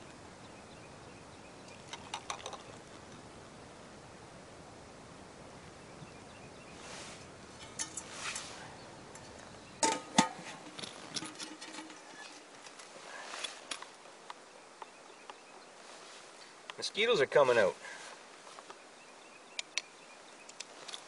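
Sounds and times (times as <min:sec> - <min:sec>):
metal cook pot clanking: 0:07.6 - 0:08.1, 0:09.8 - 0:12.1.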